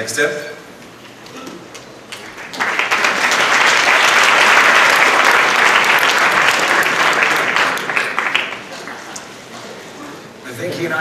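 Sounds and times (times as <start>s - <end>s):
audience applauding: 2.1s - 9.4s.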